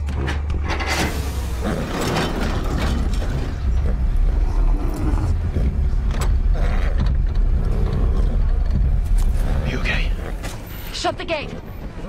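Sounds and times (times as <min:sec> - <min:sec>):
metal gate clanking and rattling: 0:00.1 - 0:03.9
deep low rumble: 0:00.1 - 0:12.0.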